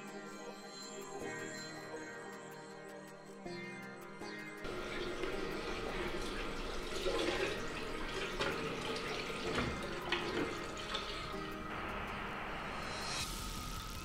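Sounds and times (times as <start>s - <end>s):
water running from sink tap: 4.7s - 11.7s
water splashing into basin: 4.7s - 11.7s.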